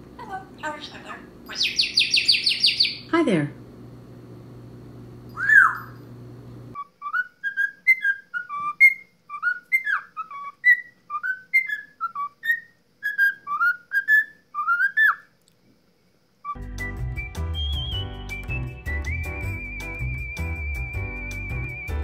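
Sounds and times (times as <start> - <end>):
parrot whistle: 1.6 - 3.1, 5.4 - 6.0, 6.8 - 15.3, 16.4 - 22.0
cockatiel whistling a tune: 5.4 - 6.0, 6.8 - 15.3, 16.4 - 22.0.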